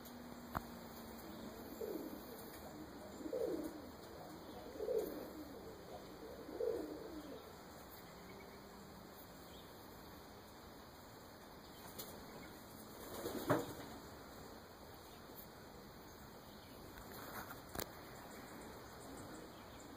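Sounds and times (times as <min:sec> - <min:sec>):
pigeon cooing: 0:01.2 - 0:07.6.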